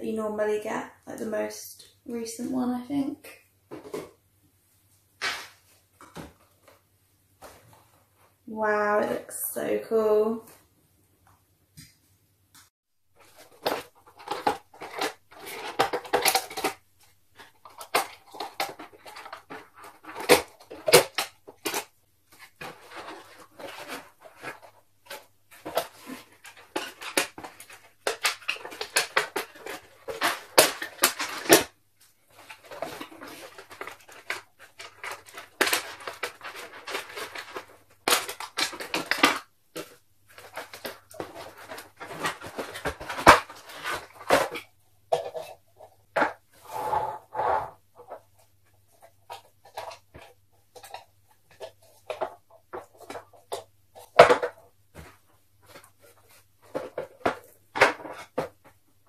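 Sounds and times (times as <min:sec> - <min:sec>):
cardboard box crinkling and scraping: 0:17.4 - 0:46.8.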